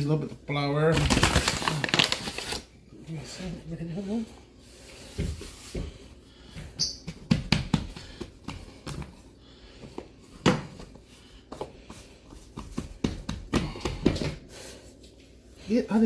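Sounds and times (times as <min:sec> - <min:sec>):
dough thumps and taps on counter: 0:07.0 - 0:09.1, 0:12.5 - 0:14.4.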